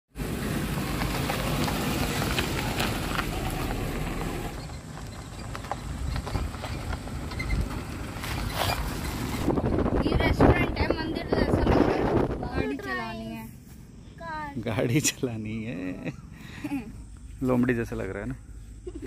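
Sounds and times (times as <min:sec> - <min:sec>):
car engine running low: 0:00.1 - 0:12.4
tyres crunching on dirt: 0:00.2 - 0:11.0
clicks from road surface: 0:00.9 - 0:09.4.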